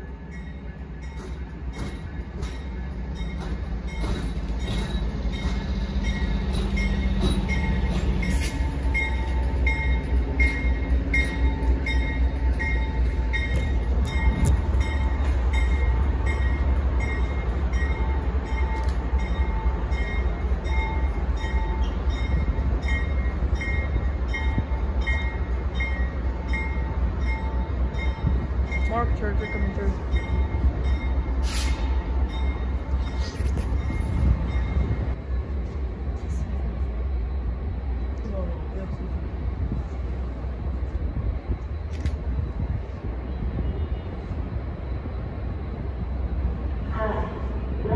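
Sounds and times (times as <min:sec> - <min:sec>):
train engine drone and rumble: 0:00.0 - 0:47.9
train wheels clicking: 0:00.3 - 0:36.4.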